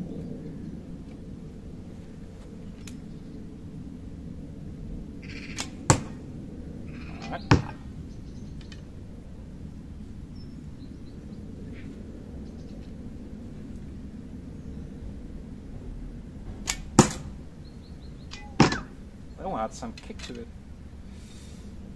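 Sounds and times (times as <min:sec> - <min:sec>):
arrow striking target: 0:05.5 - 0:06.2, 0:07.2 - 0:07.8, 0:16.5 - 0:17.4, 0:18.3 - 0:19.0
arrow whoosh: 0:18.3 - 0:19.0.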